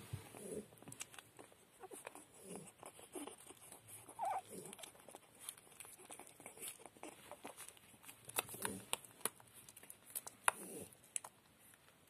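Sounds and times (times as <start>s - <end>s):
puppies grunting and snuffling: 0.0s - 11.4s
puppy squeaking: 1.3s - 7.9s.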